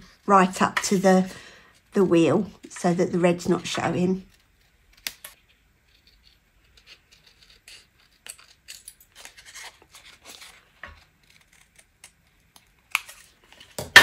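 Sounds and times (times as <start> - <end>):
scissors snipping paper: 6.0 - 13.3.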